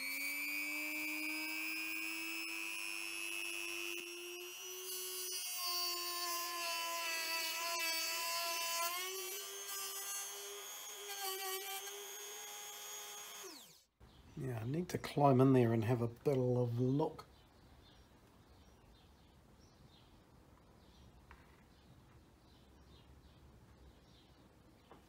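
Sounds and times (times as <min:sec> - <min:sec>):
rotary tool high whine: 0:00.0 - 0:13.9.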